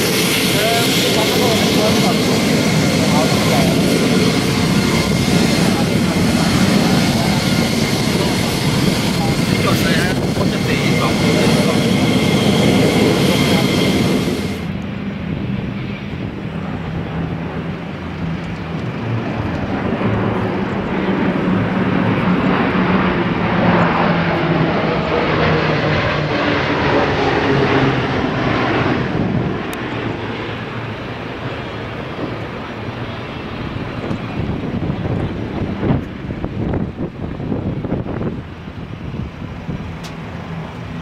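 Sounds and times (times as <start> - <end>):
airplane engine: 0.0 - 41.0.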